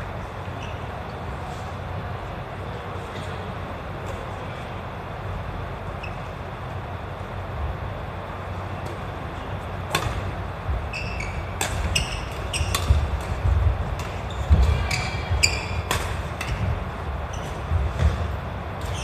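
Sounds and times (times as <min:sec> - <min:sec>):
court shoes squeaking: 0:00.0 - 0:04.7, 0:05.8 - 0:07.0, 0:08.5 - 0:19.0
rackets striking shuttlecock: 0:09.8 - 0:10.4, 0:11.0 - 0:19.0.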